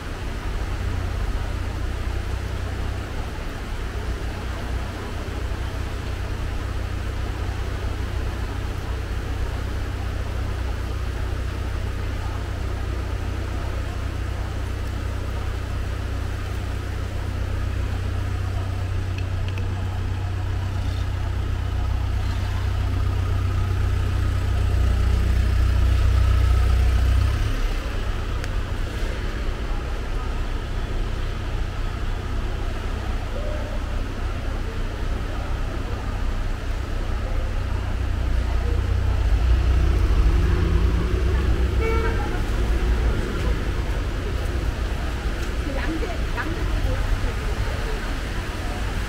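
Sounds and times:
floodwater rushing: 0:00.0 - 0:49.0.

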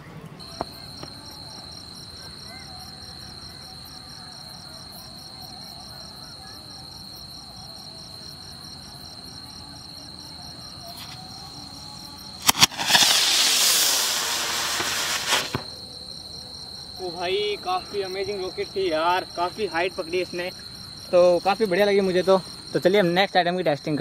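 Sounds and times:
crickets chirping: 0:00.4 - 0:24.0
firework rocket cracks: 0:12.4 - 0:15.8
firework rocket rushing hiss: 0:12.4 - 0:15.8.

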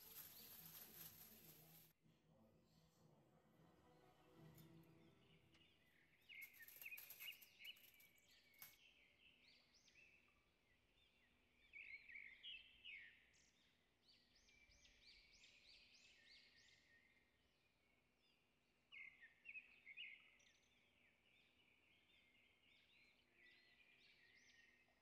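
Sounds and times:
faint high chirping: 0:00.0 - 0:01.8, 0:04.4 - 0:10.4
aluminium foil crinkling: 0:00.0 - 0:02.0, 0:06.3 - 0:08.8.

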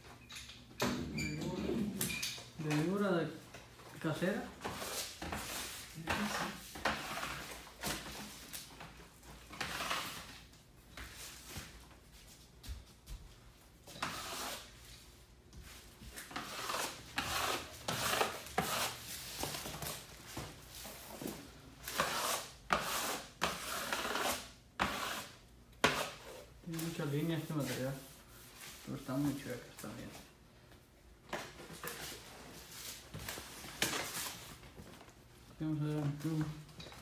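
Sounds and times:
rubbing and scuffing swishes: 0:13.9 - 0:30.2.

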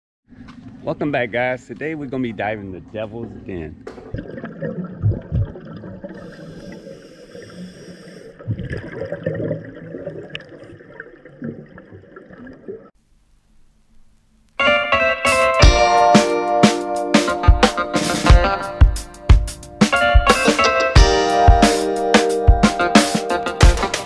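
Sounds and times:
bubbles gurgling underwater: 0:04.0 - 0:06.8, 0:08.3 - 0:12.9
scuba regulator hissing: 0:06.2 - 0:08.4.

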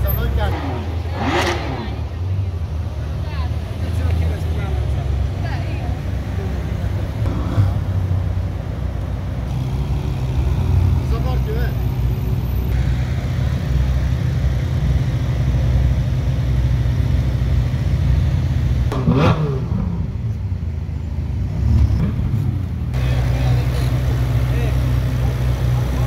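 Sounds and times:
sports car engines rumbling: 0:00.0 - 0:26.0
car engine revving hard: 0:00.3 - 0:02.2, 0:18.9 - 0:20.1.

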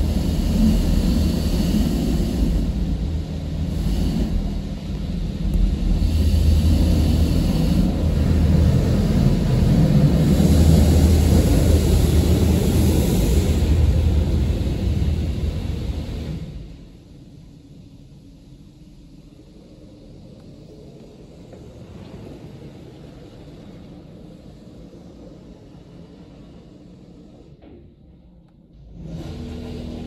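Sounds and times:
car wash spraying water: 0:00.0 - 0:17.6.

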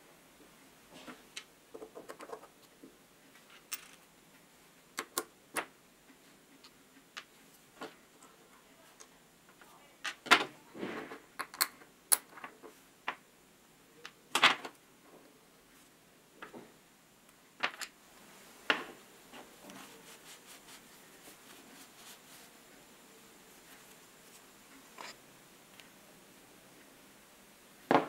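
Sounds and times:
soft rag rubbing: 0:19.2 - 0:25.2.

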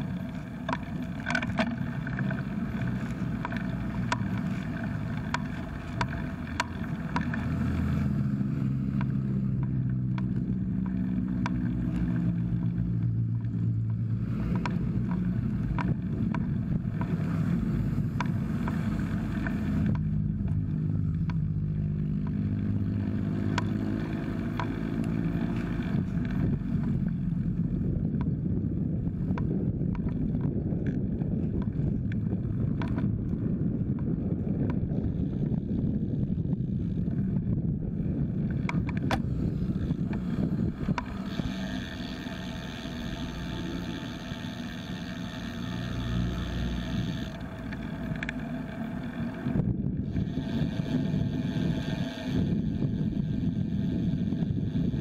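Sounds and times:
motor vehicles passing: 0:00.0 - 0:55.0
road rumble: 0:00.0 - 0:55.0
wind buffeting microphone: 0:00.0 - 0:55.0
light ticks: 0:00.6 - 0:07.9, 0:08.9 - 0:17.2, 0:18.0 - 0:21.5, 0:23.5 - 0:23.8, 0:24.4 - 0:27.2, 0:38.5 - 0:49.6.

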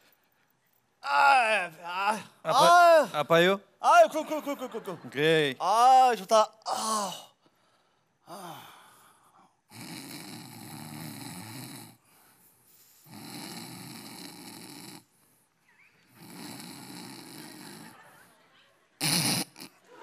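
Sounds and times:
man snoring: 0:09.7 - 0:12.2, 0:13.0 - 0:15.2, 0:16.1 - 0:18.0, 0:19.0 - 0:19.7.

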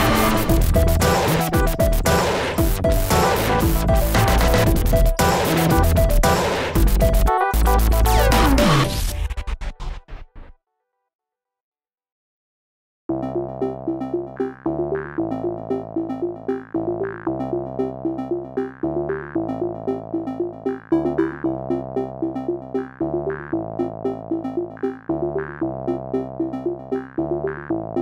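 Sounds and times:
repeating note background music: 0:00.0 - 0:09.2, 0:13.1 - 0:28.0.

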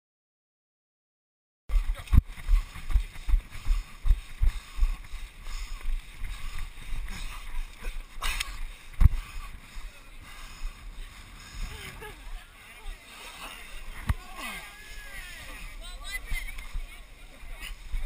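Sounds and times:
wind noise on microphone: 0:01.7 - 0:12.5.

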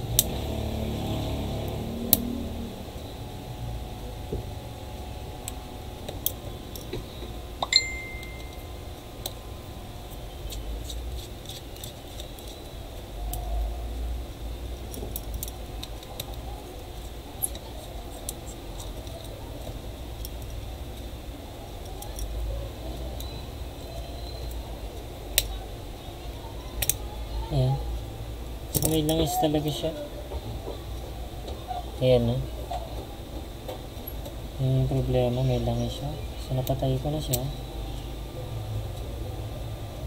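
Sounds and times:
low steady rumble: 0:00.0 - 0:40.0
short ringing clink: 0:07.6 - 0:08.8.

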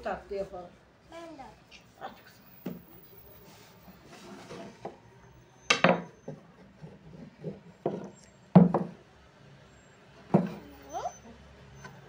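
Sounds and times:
rolling pin knocking on wooden table: 0:05.7 - 0:06.4, 0:07.4 - 0:09.0, 0:10.3 - 0:10.6.

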